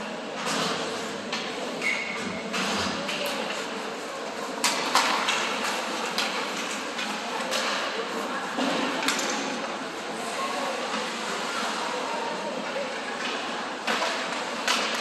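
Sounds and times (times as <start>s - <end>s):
arena noise: 0.0s - 15.0s
hockey sticks and puck clacking: 4.4s - 9.7s, 13.2s - 15.0s.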